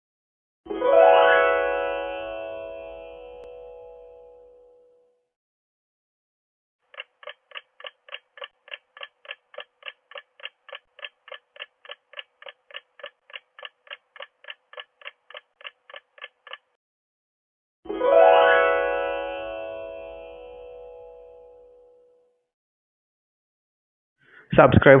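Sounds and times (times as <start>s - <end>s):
countdown timer ticking: 6.9s - 16.8s.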